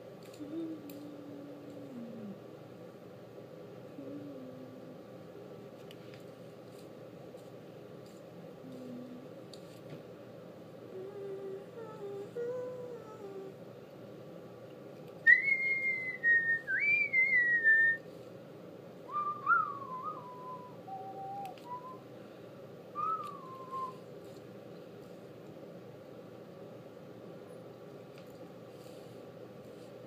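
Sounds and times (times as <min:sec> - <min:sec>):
person whistling a tune: 0:15.3 - 0:18.0, 0:19.1 - 0:22.0, 0:23.0 - 0:24.0.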